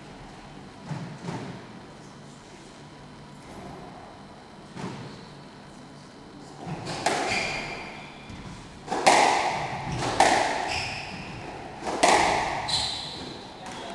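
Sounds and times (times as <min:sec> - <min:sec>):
squash ball hits: 0:06.6 - 0:13.9
shoe squeak: 0:06.8 - 0:08.3, 0:10.6 - 0:11.5, 0:12.6 - 0:13.9.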